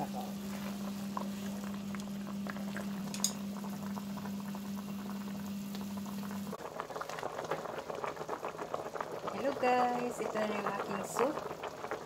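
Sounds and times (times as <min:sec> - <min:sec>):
low steady hum: 0:00.0 - 0:06.6
water boiling in a pot: 0:00.0 - 0:12.0.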